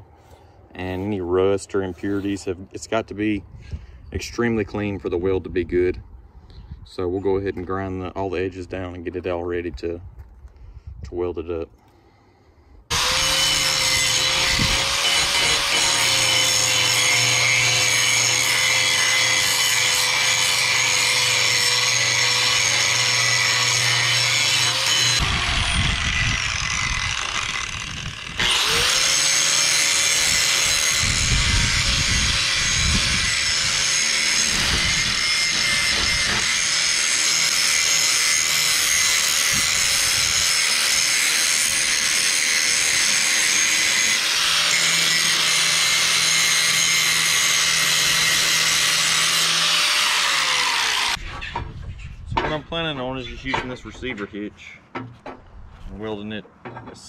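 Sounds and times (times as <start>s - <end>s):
angle grinder grinding steel: 12.9s - 51.2s.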